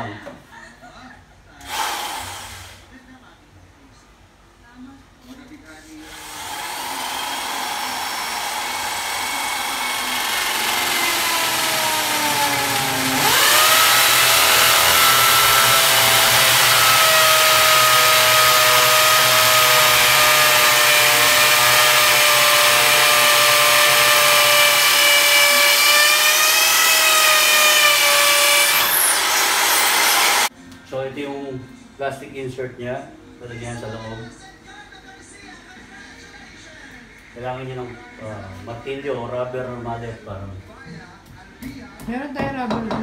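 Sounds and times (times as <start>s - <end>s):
electric drill boring into concrete: 1.6s - 2.7s, 6.1s - 30.5s.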